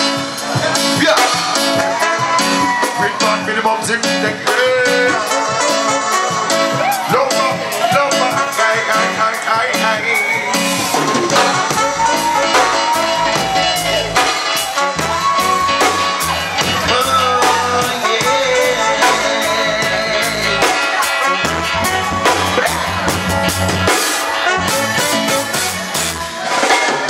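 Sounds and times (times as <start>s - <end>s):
saxophone melody: 0.0s - 26.6s
bass: 0.0s - 27.0s
drum kit beat: 0.0s - 27.0s.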